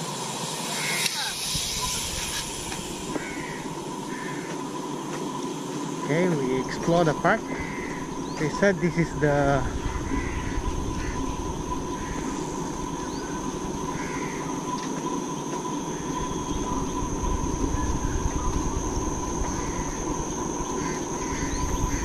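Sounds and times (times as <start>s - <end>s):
insects droning: 0.0s - 22.0s
low rumble: 7.2s - 14.1s.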